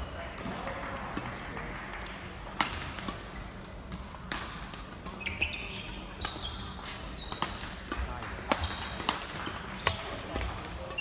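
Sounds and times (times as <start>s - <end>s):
racket hitting shuttlecock: 2.4s - 11.0s
brief squeaks: 5.2s - 7.6s.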